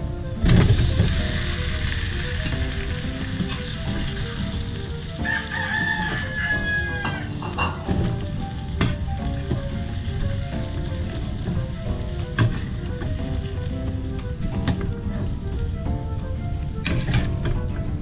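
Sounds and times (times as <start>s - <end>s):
shrimp sizzling in butter: 0.4s - 15.5s
rooster crowing: 5.2s - 7.4s.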